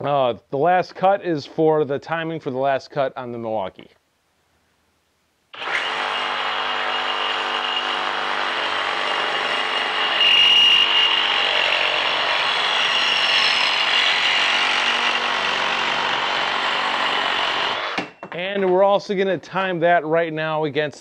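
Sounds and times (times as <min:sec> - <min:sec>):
reciprocating saw cutting metal pipe: 0:05.6 - 0:18.1.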